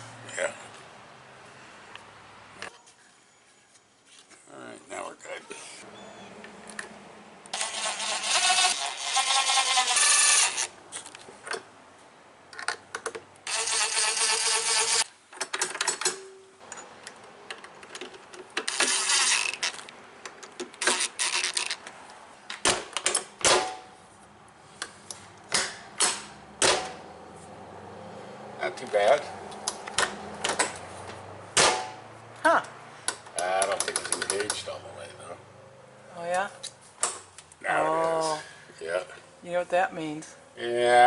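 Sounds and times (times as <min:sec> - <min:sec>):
cordless drill driving screws: 0:07.6 - 0:10.7, 0:13.5 - 0:15.1, 0:18.7 - 0:19.8
sharp clicks and knocks: 0:12.5 - 0:13.4, 0:15.3 - 0:23.8, 0:28.8 - 0:32.0, 0:32.6 - 0:34.7.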